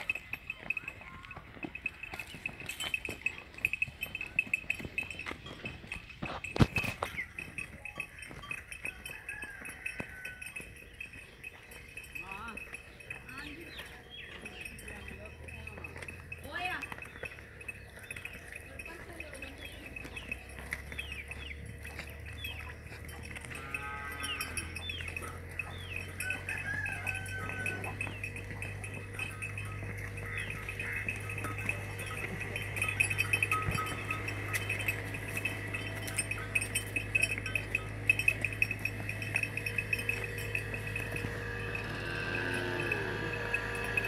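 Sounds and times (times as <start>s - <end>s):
bells jingling: 0.0s - 44.0s
animal call: 16.5s - 44.0s
low hum: 20.5s - 44.0s.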